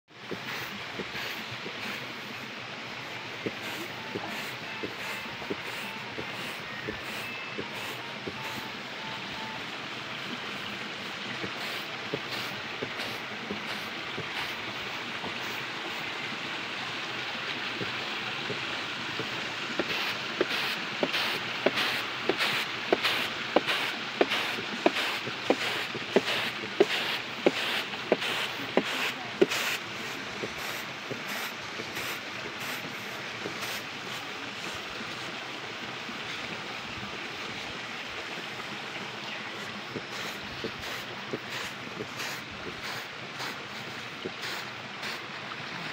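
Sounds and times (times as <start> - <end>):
grain winnowing rustle: 0.1 - 16.2, 19.0 - 35.4, 39.1 - 45.9
stream water rushing: 0.1 - 45.9.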